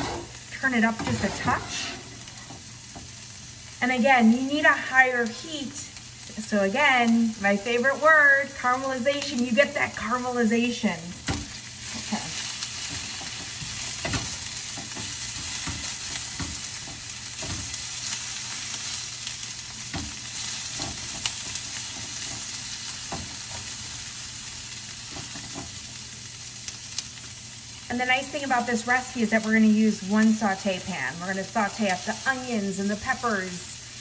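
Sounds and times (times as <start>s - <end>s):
spatula scraping against pan: 0.0s - 3.2s
onions sizzling in oil: 0.0s - 34.0s.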